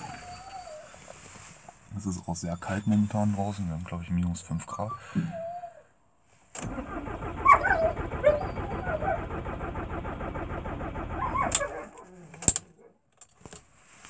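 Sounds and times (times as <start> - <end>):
starter motor cranking diesel engine: 6.6 - 12.6.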